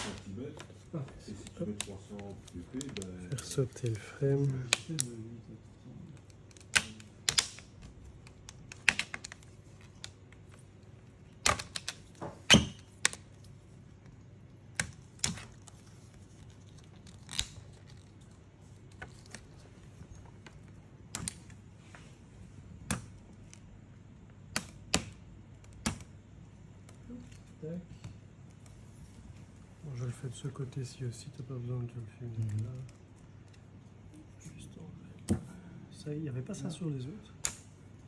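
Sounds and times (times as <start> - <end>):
plastic clips snapping loose: 1.4 - 5.2, 6.2 - 10.2, 20.6 - 21.6, 37.4 - 37.7.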